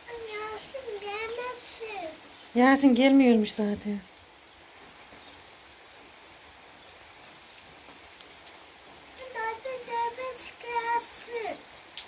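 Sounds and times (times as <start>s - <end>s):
child's high voice: 0.0s - 2.2s, 9.1s - 11.7s
rain falling: 0.0s - 12.0s
raindrops ticking: 0.0s - 12.0s.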